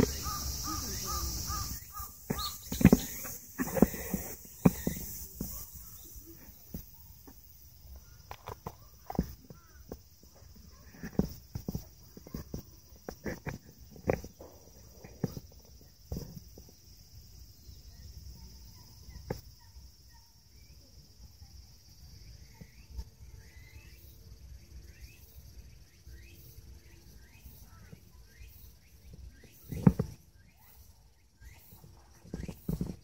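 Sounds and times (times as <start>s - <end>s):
faint short falling chirps: 0.0s - 7.1s
steady high hiss: 0.0s - 8.3s
soft thumps: 1.5s - 16.7s.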